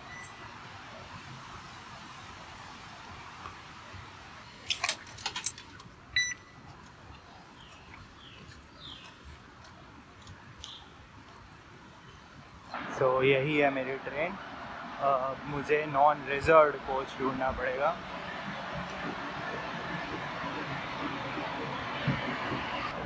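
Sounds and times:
station ambience hum: 9.4s - 23.0s.

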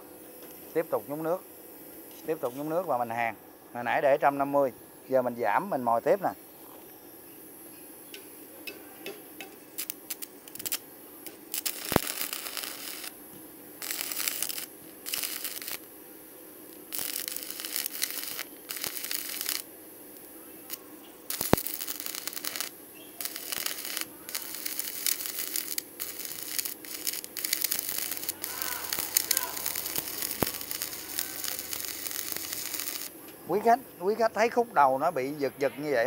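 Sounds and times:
welding arc crackling: 9.0s - 34.6s
sharp ticks: 21.3s - 33.1s.

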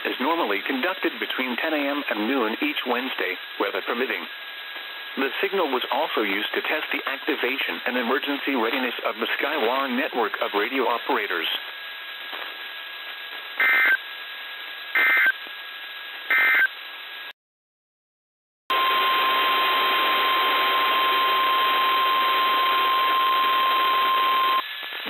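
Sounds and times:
radio static: 0.0s - 4.3s, 5.1s - 11.7s, 12.3s - 14.0s, 14.9s - 15.5s
data bursts: 13.6s - 14.0s, 14.9s - 15.4s, 16.3s - 16.7s
steady warning alarm tone: 13.6s - 14.0s, 15.0s - 15.4s, 16.3s - 16.7s, 18.7s - 24.6s.

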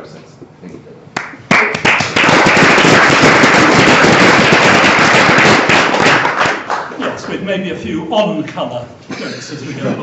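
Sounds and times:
person clapping close: 1.2s - 6.9s
audience applauding: 1.2s - 7.0s.

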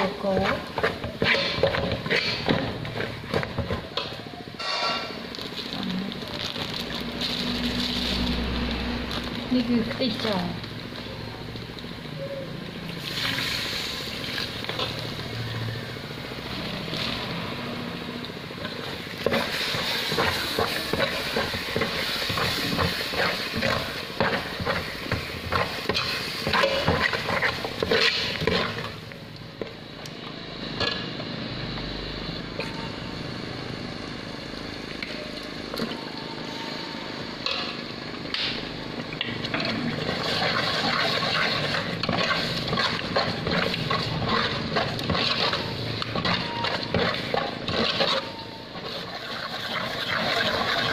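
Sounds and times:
sizzling: 0.0s - 35.8s, 36.4s - 50.9s
ladle scraping metal pot: 0.3s - 3.2s, 39.5s - 50.9s.

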